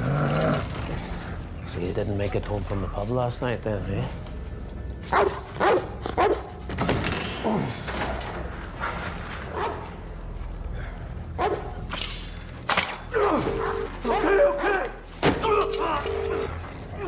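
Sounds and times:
dog barking: 5.1s - 6.5s, 11.4s - 11.7s.

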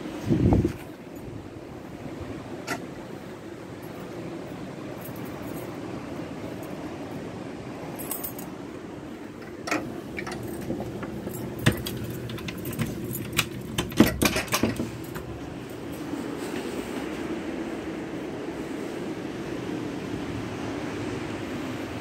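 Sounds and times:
low background rush: 0.0s - 22.0s
keys jangling: 10.2s - 15.8s.

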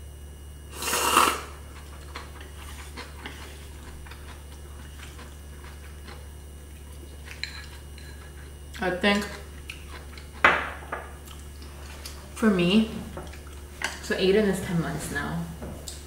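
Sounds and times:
steady low hum: 0.0s - 16.0s
noodles slurped: 0.7s - 6.2s
faint chewing: 0.8s - 10.4s, 11.2s - 12.4s, 13.1s - 14.1s.

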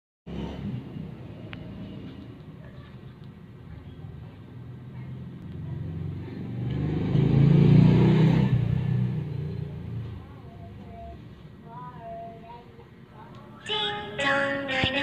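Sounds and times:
motor vehicle passing: 0.3s - 2.8s, 4.1s - 10.4s.

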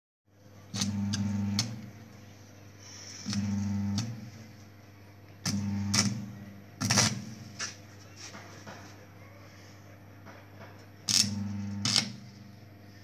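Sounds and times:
welder transformer buzz: 0.3s - 8.1s, 10.6s - 13.0s
welding arc crackling: 0.7s - 2.1s, 3.2s - 4.6s, 5.4s - 7.6s, 11.1s - 12.4s.

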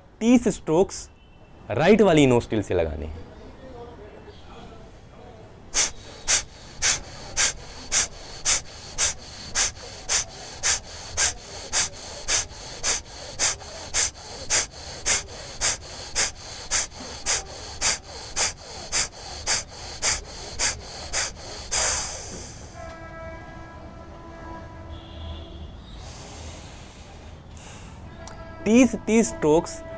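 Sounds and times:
forceful nasal exhalations: 5.7s - 23.2s, 25.9s - 28.5s.

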